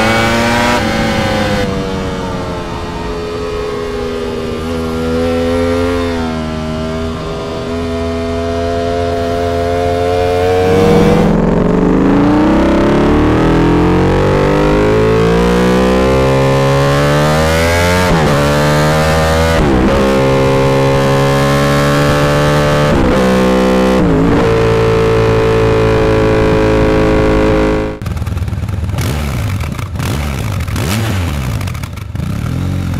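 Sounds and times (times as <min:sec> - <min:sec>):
motorcycle engine accelerating: 0:00.0 - 0:32.9.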